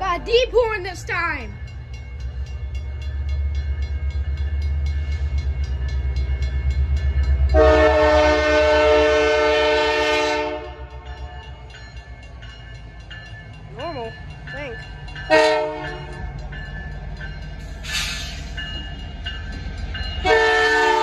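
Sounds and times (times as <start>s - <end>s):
diesel locomotive engine rumble: 0.0s - 21.0s
deep train horn blast: 7.5s - 11.3s, 15.3s - 16.2s, 20.2s - 21.0s.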